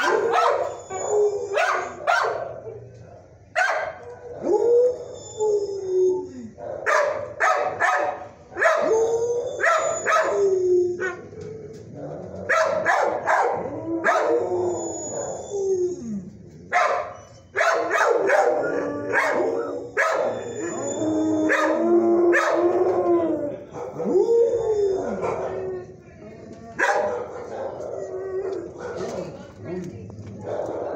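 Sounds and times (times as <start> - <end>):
dogs howling: 0.0 - 2.8, 4.0 - 7.8, 8.6 - 26.0, 26.7 - 29.4
dogs barking: 0.0 - 4.6, 6.6 - 9.0, 9.6 - 10.4, 12.4 - 14.4, 16.7 - 20.4, 21.4 - 22.7, 23.7 - 24.2, 26.8 - 29.4, 30.4 - 30.9.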